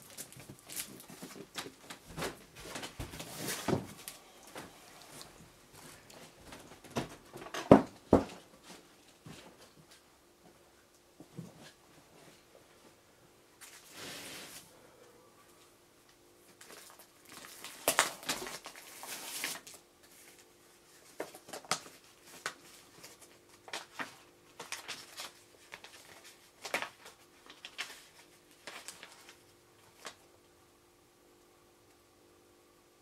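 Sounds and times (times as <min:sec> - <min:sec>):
paper rustling and crinkling: 0:00.0 - 0:07.7, 0:16.5 - 0:30.2.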